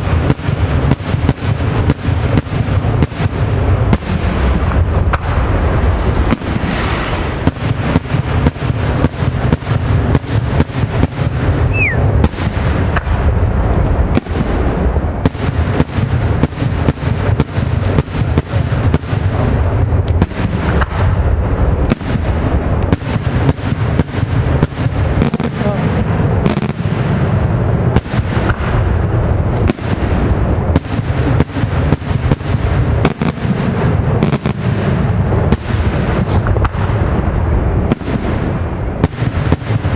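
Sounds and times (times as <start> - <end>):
falling whistle: 11.7 - 12.0.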